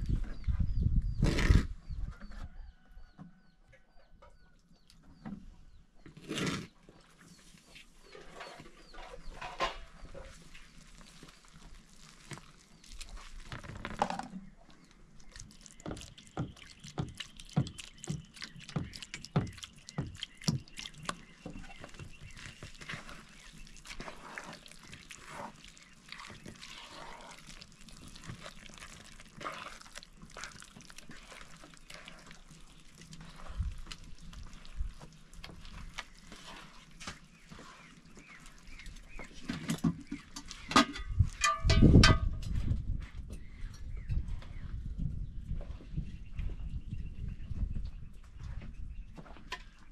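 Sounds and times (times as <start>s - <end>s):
hands squelching in wet dough: 10.3s - 14.0s, 14.8s - 39.7s
metal pots clattering: 40.6s - 42.4s.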